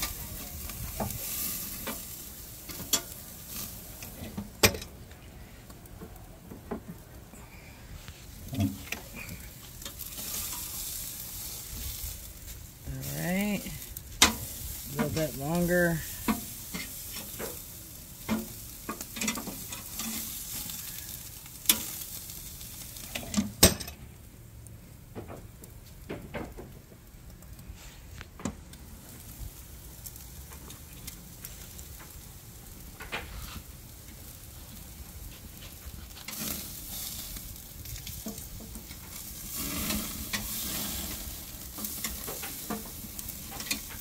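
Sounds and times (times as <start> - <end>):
steaks sizzling on a grill: 0.0 - 26.1, 26.8 - 44.0.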